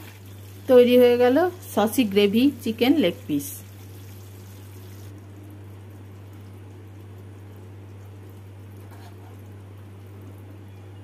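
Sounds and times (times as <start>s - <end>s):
steady low hum: 0.0s - 11.0s
spatula scraping frying pan: 8.8s - 9.5s.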